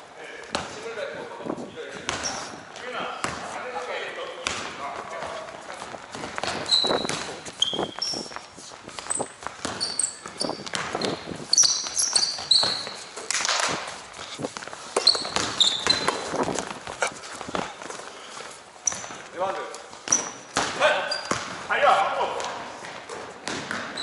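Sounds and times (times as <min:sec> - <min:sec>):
sneaker squeaks on court: 0:02.1 - 0:02.6, 0:06.4 - 0:13.3, 0:14.9 - 0:16.6, 0:18.8 - 0:19.2, 0:20.0 - 0:21.6, 0:23.4 - 0:24.0
basketball bouncing: 0:03.2 - 0:03.5, 0:04.4 - 0:07.8, 0:09.0 - 0:13.9, 0:14.6 - 0:17.9, 0:20.0 - 0:21.7, 0:22.4 - 0:24.0
running footfalls: 0:04.9 - 0:19.3.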